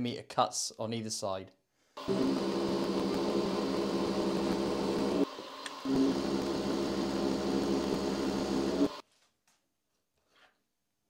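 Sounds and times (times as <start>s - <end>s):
milling machine cutting steel: 2.0s - 9.0s.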